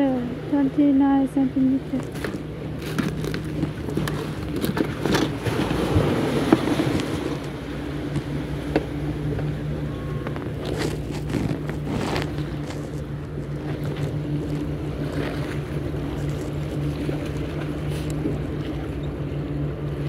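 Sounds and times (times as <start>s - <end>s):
boat engine droning: 0.0s - 20.0s
water washing: 0.0s - 20.0s
rustling: 10.2s - 14.0s.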